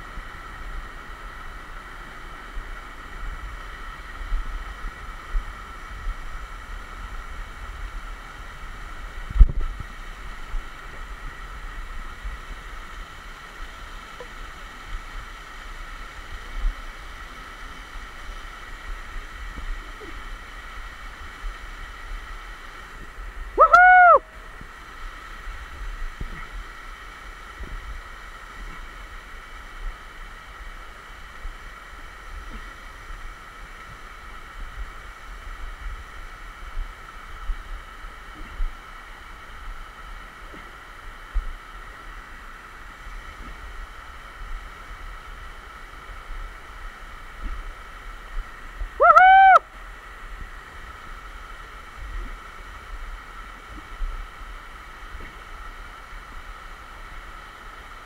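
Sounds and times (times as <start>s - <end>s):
waterfall rushing and splashing: 0.0s - 58.0s
hooting call: 23.6s - 24.4s, 49.0s - 49.7s.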